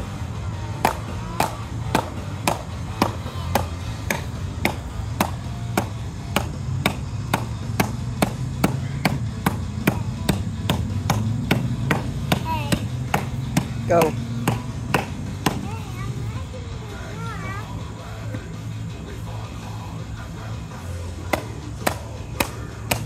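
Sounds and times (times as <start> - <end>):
hatchet chopping wooden branch: 0.8 - 15.6, 21.2 - 23.0.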